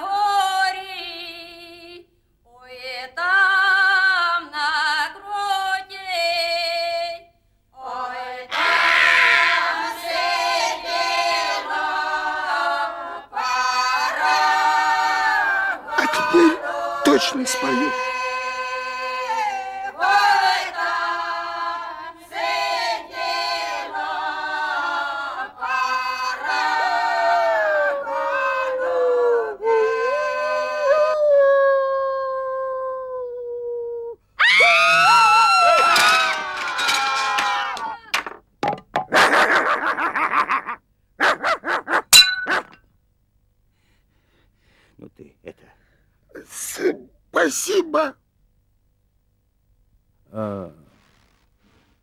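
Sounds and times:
group singing in harmony: 0:07.8 - 0:30.9
cartoon dog barking: 0:41.2 - 0:42.0
sharp ringing hit: 0:42.2 - 0:42.8.

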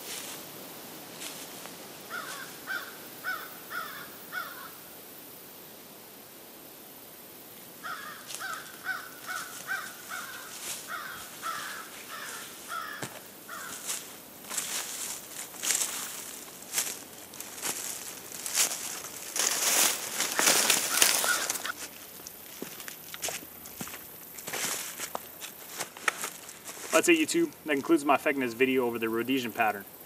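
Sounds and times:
brush rustling underfoot: 0:00.0 - 0:04.7, 0:07.8 - 0:29.6
bird calling: 0:02.1 - 0:04.8, 0:07.8 - 0:14.0, 0:17.6 - 0:21.8.

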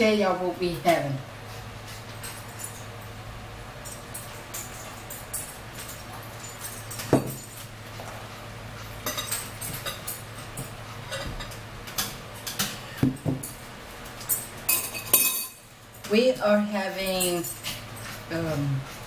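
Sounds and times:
spoon and dishes clinking: 0:02.2 - 0:03.2, 0:09.0 - 0:16.2.

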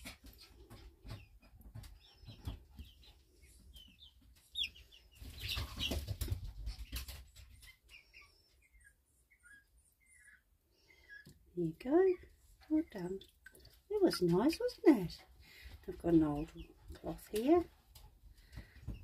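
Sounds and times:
chick peeping: 0:00.0 - 0:15.0.

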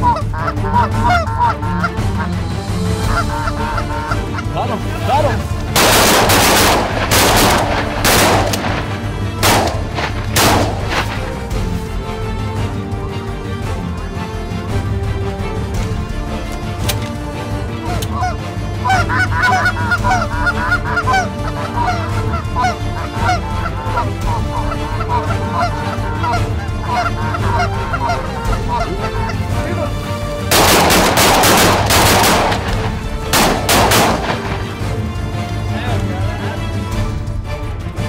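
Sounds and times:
geese honking: 0:00.0 - 0:11.5, 0:17.7 - 0:34.9
shotgun blasts: 0:05.8 - 0:11.3, 0:30.5 - 0:34.9.

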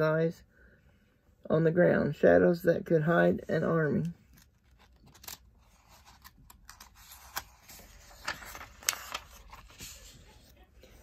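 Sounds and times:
book page rustling: 0:04.2 - 0:11.0
crisp page clicks: 0:04.4 - 0:05.4.

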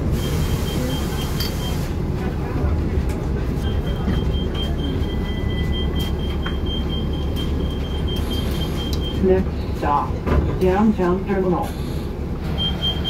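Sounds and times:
bus engine and cabin rumble: 0:00.0 - 0:13.0
high-pitched electronic warning beep: 0:03.7 - 0:09.3, 0:12.6 - 0:13.0.

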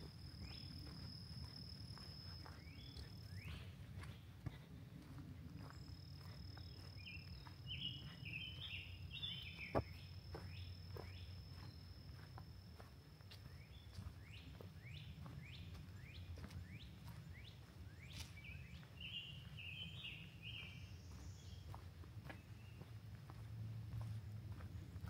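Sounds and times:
birds chirping: 0:05.5 - 0:23.4.

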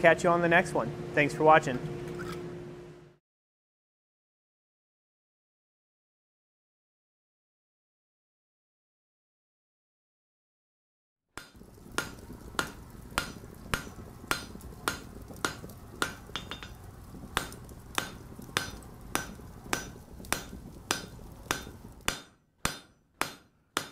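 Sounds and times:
low steady hum: 0:00.0 - 0:03.2, 0:11.4 - 0:23.4
hammer blows on steel anvil: 0:17.4 - 0:23.9.

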